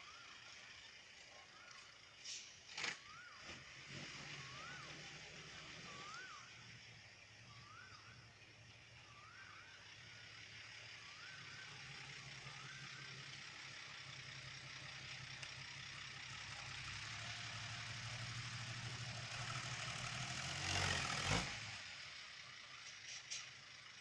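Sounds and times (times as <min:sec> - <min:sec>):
truck diesel engine running: 0:00.0 - 0:24.0
air brake hiss: 0:02.2 - 0:02.7.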